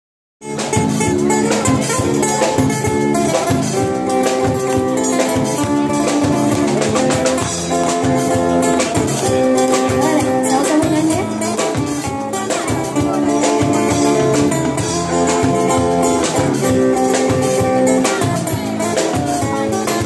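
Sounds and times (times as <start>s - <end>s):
drum kit beat: 0.4s - 20.0s
guitar: 0.4s - 20.0s.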